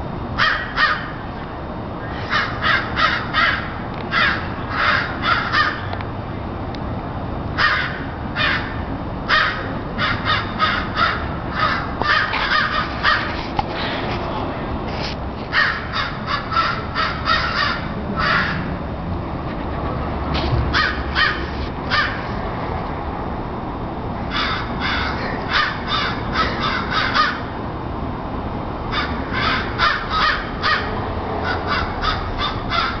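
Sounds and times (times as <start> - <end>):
crows cawing: 0.4 - 1.2, 2.0 - 6.0, 7.6 - 13.4, 15.5 - 18.7, 20.7 - 22.2, 24.3 - 27.5, 28.9 - 33.0.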